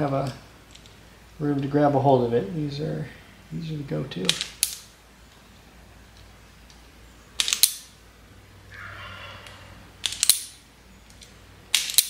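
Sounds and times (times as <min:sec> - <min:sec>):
wire strippers snapping shut: 0:07.4 - 0:07.9, 0:10.0 - 0:12.0.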